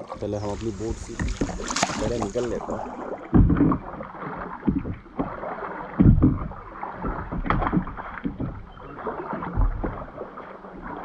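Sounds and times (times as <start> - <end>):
paddle splashing in water: 0.0 - 11.0
heavy low thump: 0.8 - 2.7, 3.3 - 4.0, 6.0 - 6.6.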